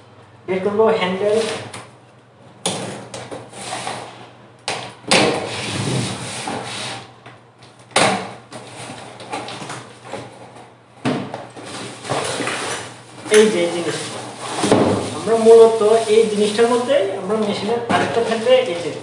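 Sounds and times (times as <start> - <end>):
cardboard scraping and rustling: 5.4 - 7.1, 11.6 - 17.1.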